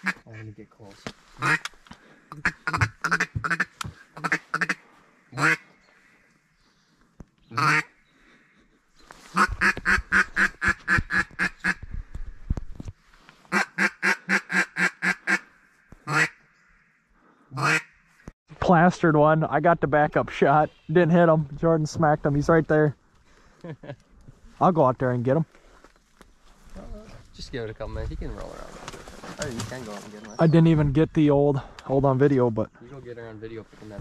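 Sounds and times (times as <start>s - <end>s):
duck quacking: 1.4s - 1.7s, 2.3s - 5.7s, 7.5s - 8.0s, 9.3s - 11.8s, 13.5s - 16.4s, 17.5s - 17.9s.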